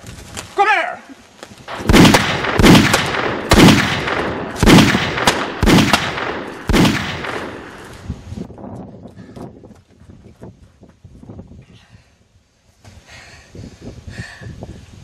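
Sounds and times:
gunshots with echo: 1.7 - 7.8.

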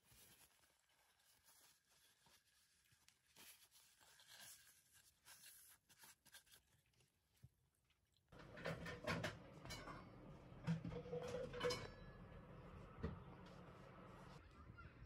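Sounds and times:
tissue rustling on drink can: 0.0 - 7.6.

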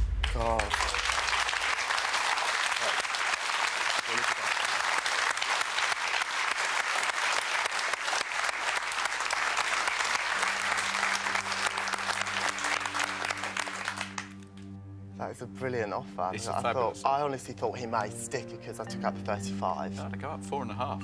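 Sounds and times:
audience applauding: 0.0 - 14.6.

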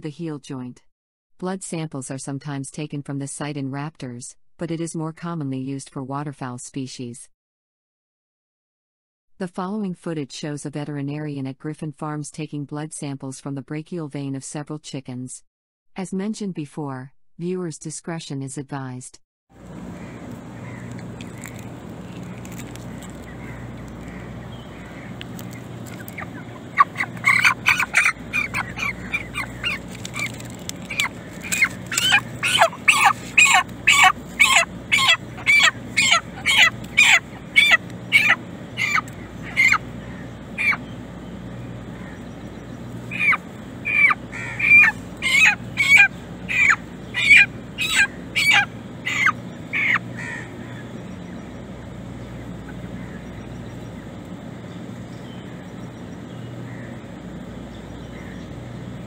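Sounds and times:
chicken squawking in distress: 19.8 - 40.8, 43.1 - 50.9.

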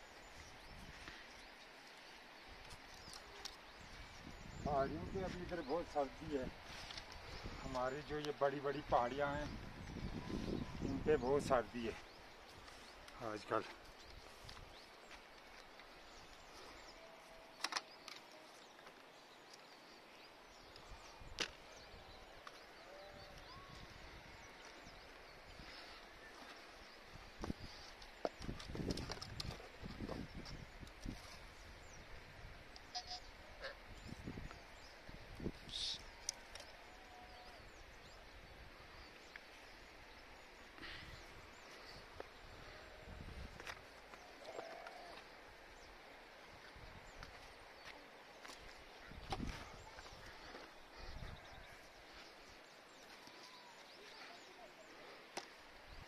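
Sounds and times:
faint high bird chirps: 53.0 - 54.9.

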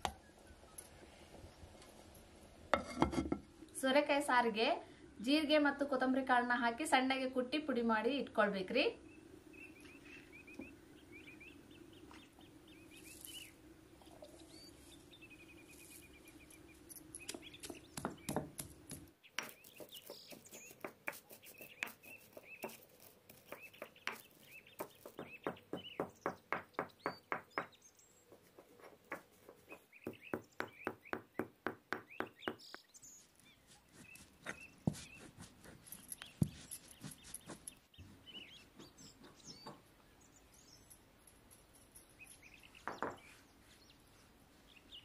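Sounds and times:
birds chirping: 9.0 - 45.0
pestle pounding in mortar: 24.8 - 27.8, 30.0 - 32.7.

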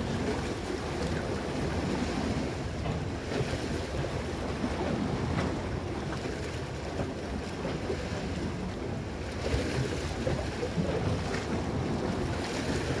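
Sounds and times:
wave splash: 0.0 - 13.0
waves lapping against rocks: 0.0 - 13.0.

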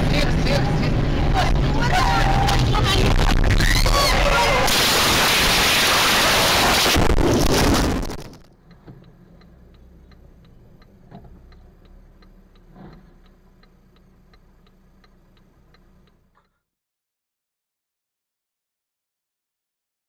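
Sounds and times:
loud rushing crashing noise: 0.9 - 8.4
car indicator ticking: 8.5 - 16.4.

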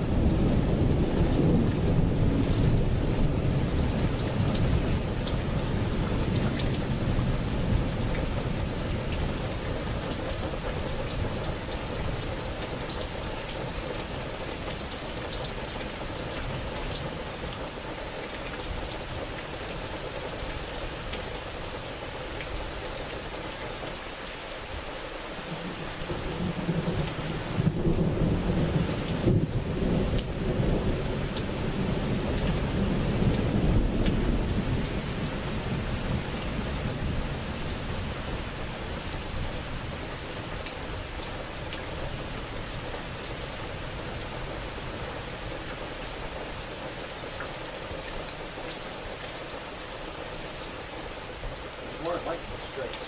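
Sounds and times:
low rumble of thunder: 0.0 - 17.6, 25.5 - 45.5
steady rain: 0.0 - 53.0.

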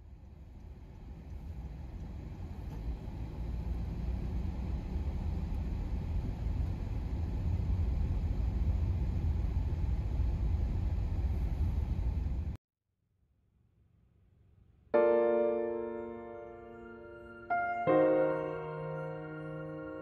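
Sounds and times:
car road and engine rumble: 0.0 - 12.6.

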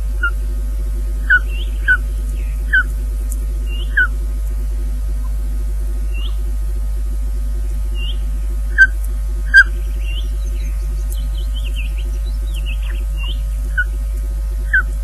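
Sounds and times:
electrical hum with pulsing buzz: 0.0 - 15.0
osprey whistled calls: 1.2 - 2.9, 3.7 - 4.1, 6.1 - 6.4, 8.0 - 14.0, 14.7 - 14.9.

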